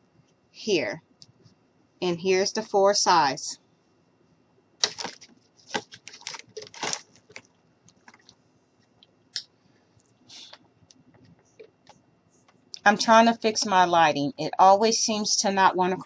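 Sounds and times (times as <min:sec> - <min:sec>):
handling rustles: 0:04.8 - 0:08.3.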